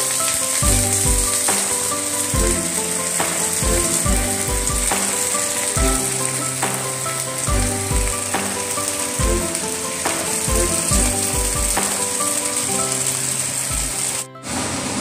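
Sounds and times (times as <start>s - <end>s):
cabbage sizzling in a pan: 0.0s - 15.0s
music with bass beat: 0.6s - 1.8s, 2.4s - 5.2s, 5.8s - 6.9s, 7.5s - 8.6s, 9.2s - 9.6s, 10.2s - 12.1s.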